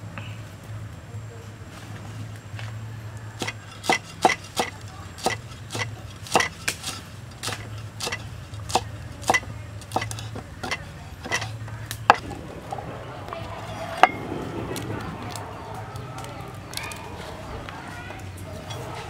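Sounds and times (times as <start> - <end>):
cleaver chopping on wood: 3.4 - 12.3.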